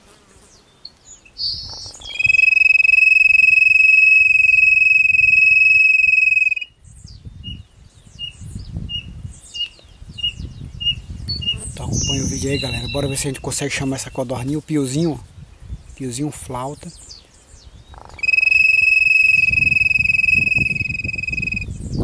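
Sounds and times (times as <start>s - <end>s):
quail call whistle: 2.0s - 6.8s, 18.1s - 21.7s
short even peeps: 18.2s - 21.7s.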